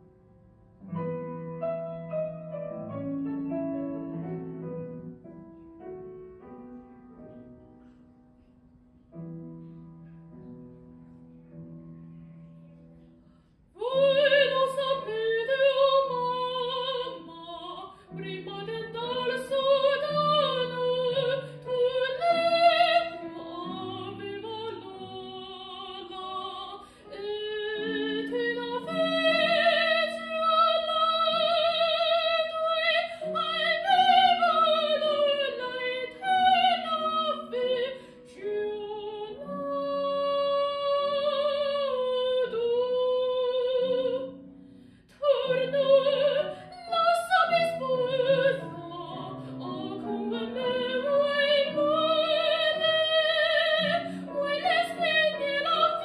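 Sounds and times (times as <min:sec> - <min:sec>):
woman singing opera: 0:13.8 - 0:44.4, 0:45.1 - 0:56.0.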